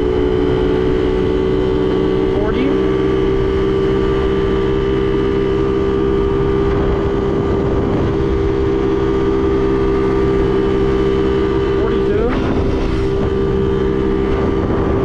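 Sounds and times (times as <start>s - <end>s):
moped engine running high: 0.0s - 15.0s
wind rumbling over microphone: 0.0s - 15.0s.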